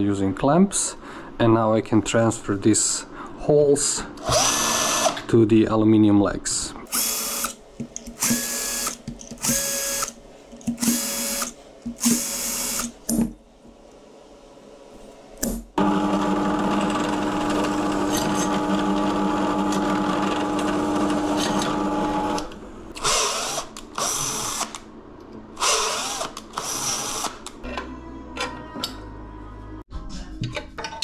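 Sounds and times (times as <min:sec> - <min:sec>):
cordless drill drilling metal: 0:04.2 - 0:05.2, 0:06.9 - 0:07.6, 0:08.2 - 0:10.2, 0:10.8 - 0:12.9, 0:23.0 - 0:24.8, 0:25.6 - 0:27.4
drill press drilling metal: 0:15.8 - 0:22.4.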